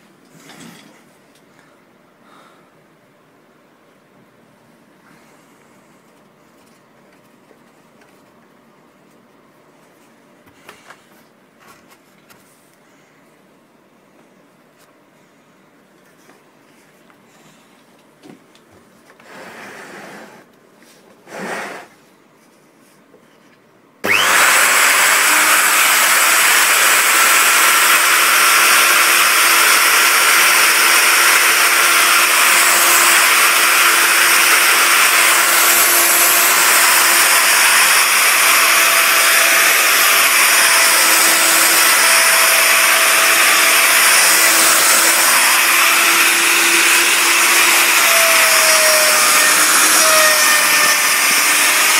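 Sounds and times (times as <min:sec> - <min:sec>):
soft handling sounds: 0:05.2 - 0:13.2
electric router motor whine: 0:24.0 - 0:51.9.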